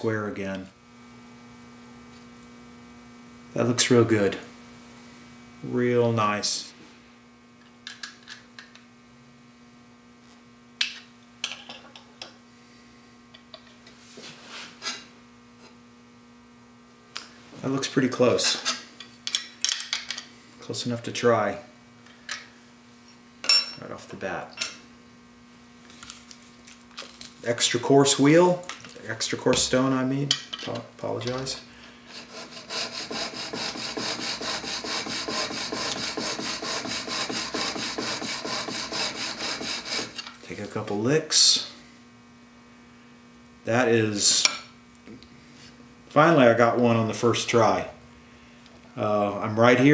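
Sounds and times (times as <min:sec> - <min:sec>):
steady low hum: 0:00.0 - 0:49.9
chisel scraping on sharpening stone: 0:32.1 - 0:40.3.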